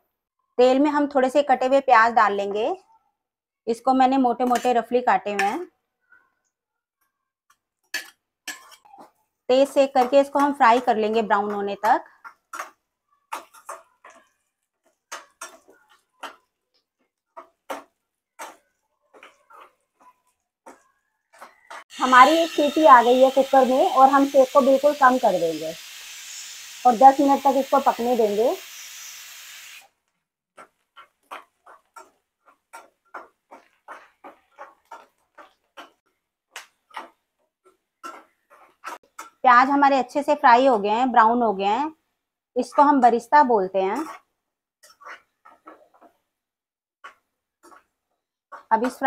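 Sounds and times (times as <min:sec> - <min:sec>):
metal spatula scraping frying pan: 0:07.8 - 0:29.8, 0:30.6 - 0:39.5, 0:43.8 - 0:46.2, 0:47.0 - 0:47.9.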